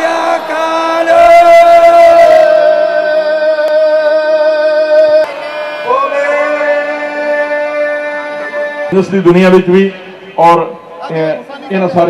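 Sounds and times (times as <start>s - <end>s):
long held sung notes: 0.0s - 10.4s.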